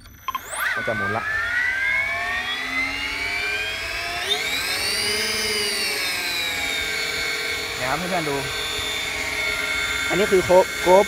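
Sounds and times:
electric motor whine: 0.0 - 11.0.

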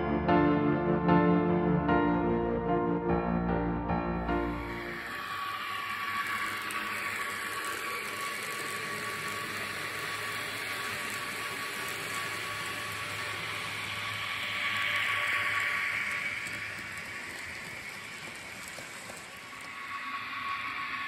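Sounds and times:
model train wheels on track: 4.4 - 21.0
small electric motor whirring: 4.5 - 21.0.

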